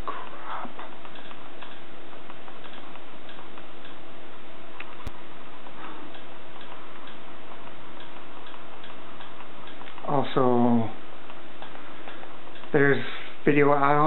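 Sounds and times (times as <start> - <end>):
soft ticking clicks: 0.0 - 14.0
steady hum and hiss: 0.0 - 14.0
sharp click: 1.0 - 4.0, 11.2 - 13.1.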